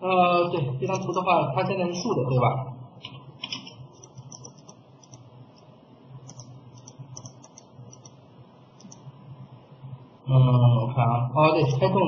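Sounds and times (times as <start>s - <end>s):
steady low hum: 0.0s - 12.0s
keyboard and mouse clicking: 0.9s - 1.2s, 3.4s - 8.2s, 8.8s - 9.1s.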